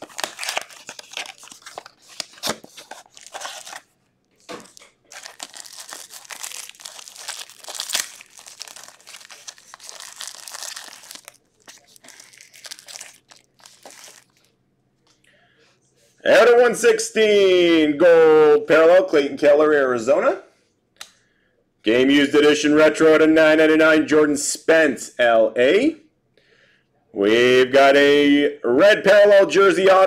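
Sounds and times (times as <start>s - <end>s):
cardboard box tearing: 0.0s - 3.8s
foil wrapper crinkling and tearing: 0.0s - 3.9s, 4.6s - 14.5s.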